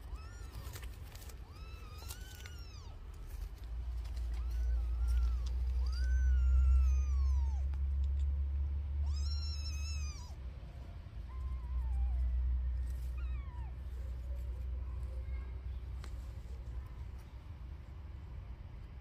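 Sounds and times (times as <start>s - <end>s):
kittens mewing: 0.0s - 8.1s, 9.0s - 14.6s
steady low rumble: 0.0s - 19.0s.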